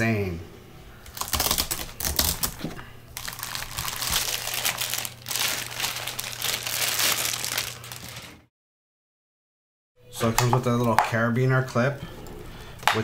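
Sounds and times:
plastic bag crinkling: 0:01.1 - 0:08.5.

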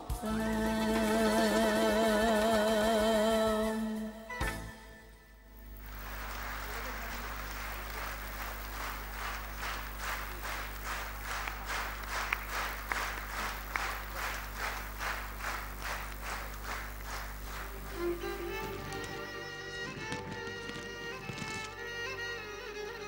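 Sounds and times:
music: 0:00.0 - 0:05.7, 0:17.7 - 0:23.0
audience clapping in unison: 0:00.2 - 0:03.0, 0:05.6 - 0:22.2
steady low hum: 0:04.9 - 0:23.0.

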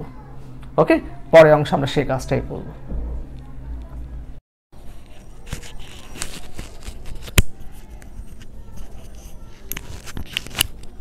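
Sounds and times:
rustling: 0:04.8 - 0:11.0.

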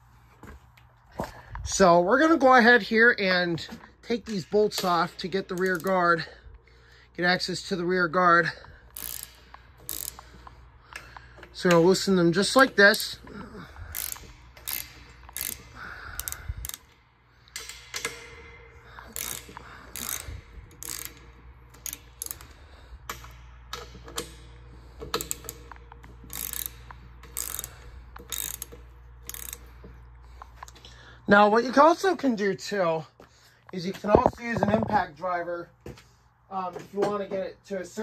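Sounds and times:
ratcheting wrench clicking: 0:04.0 - 0:06.4, 0:08.4 - 0:30.9.

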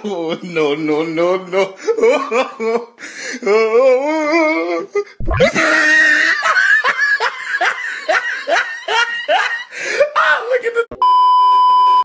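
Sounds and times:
person laughing: 0:05.2 - 0:10.1.

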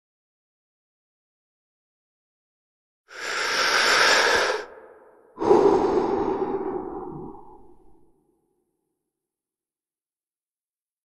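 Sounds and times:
breathy exhales: 0:03.1 - 0:08.3.

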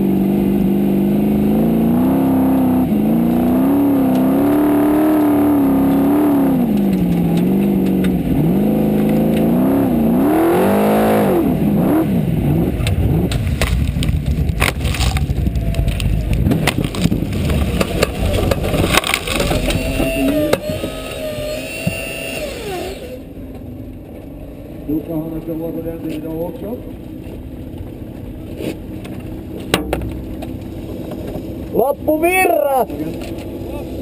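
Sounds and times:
car engine revving: 0:00.0 - 0:34.0
knocks and bangs of car rolling: 0:16.0 - 0:21.0, 0:29.5 - 0:31.6.

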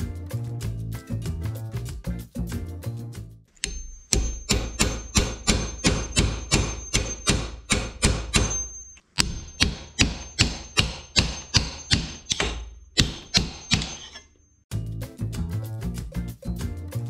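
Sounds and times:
high metallic ring: 0:03.6 - 0:07.5, 0:08.3 - 0:14.6
hammer striking steel punch: 0:03.6 - 0:14.4.

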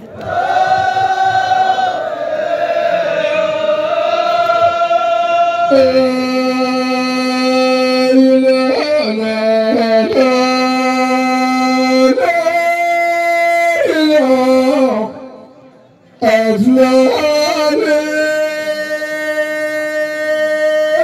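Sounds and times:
voices chanting unaccompanied: 0:00.0 - 0:07.6.

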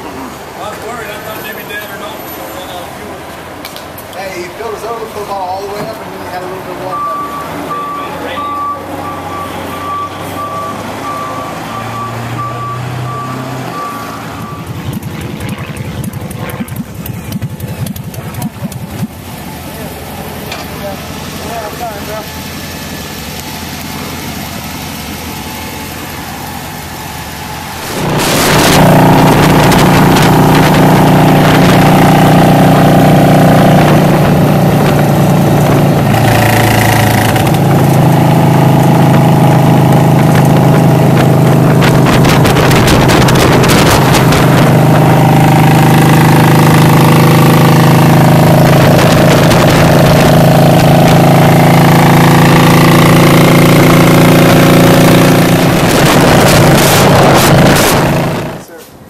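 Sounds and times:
motorcycle engine running: 0:14.4 - 0:58.8
wind rushing over microphone: 0:27.8 - 0:32.8, 0:39.0 - 0:45.9, 0:47.8 - 0:51.6, 0:55.3 - 0:58.6.

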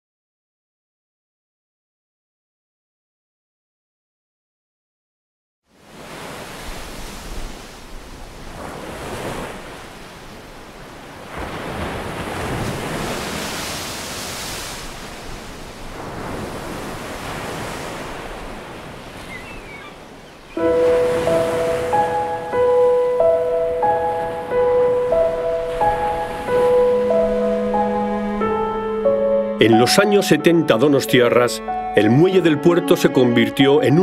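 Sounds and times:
wind: 0:05.6 - 0:29.6
surf breaking over rocks: 0:05.9 - 0:23.0.

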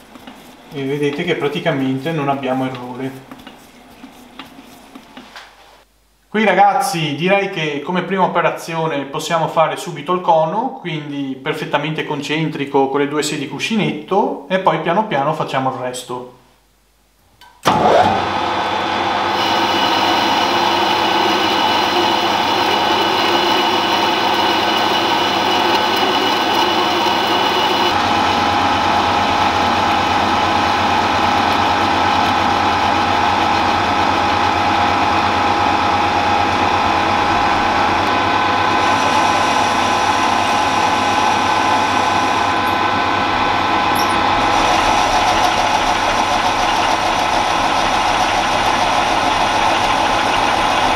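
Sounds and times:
metal lathe switching on: 0:17.6 - 0:18.4, 0:19.3 - 0:28.1, 0:43.9 - 0:50.9
lathe motor whining: 0:17.7 - 0:50.9.

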